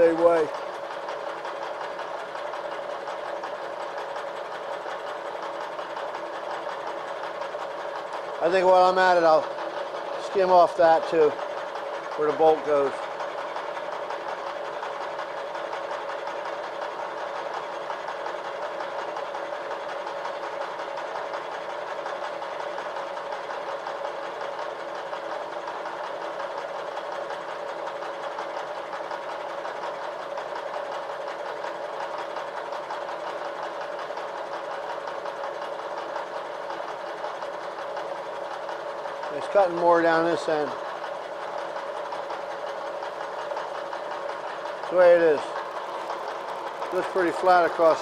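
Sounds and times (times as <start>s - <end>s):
milling machine cutting: 22.5s - 48.0s.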